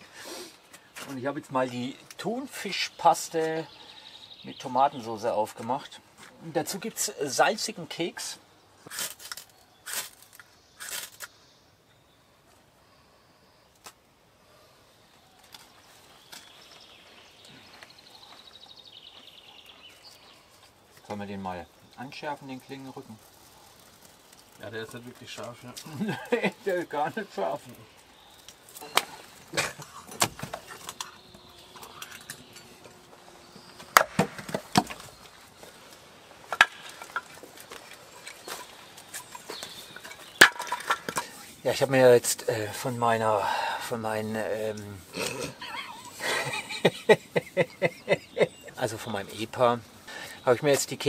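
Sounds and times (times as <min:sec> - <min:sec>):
hatchet chopping firewood: 0:30.1 - 0:30.6, 0:33.8 - 0:35.0, 0:36.5 - 0:37.3, 0:40.2 - 0:41.2.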